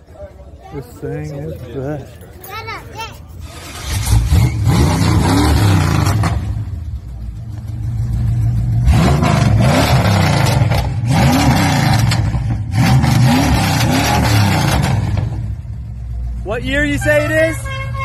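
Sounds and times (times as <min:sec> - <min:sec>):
car engine revving: 0:03.4 - 0:16.8.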